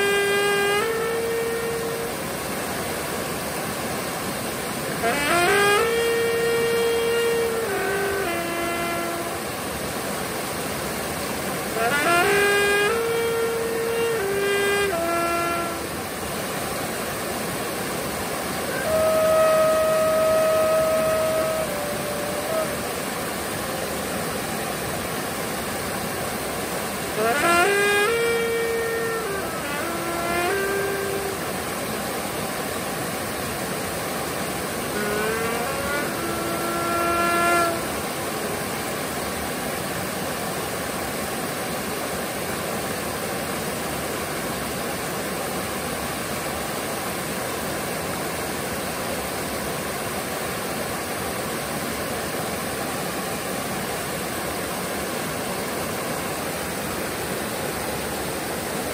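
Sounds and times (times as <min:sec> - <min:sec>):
glass trumpet notes: 0:00.0 - 0:09.9, 0:11.2 - 0:39.9
waterfall rushing: 0:00.0 - 0:58.9.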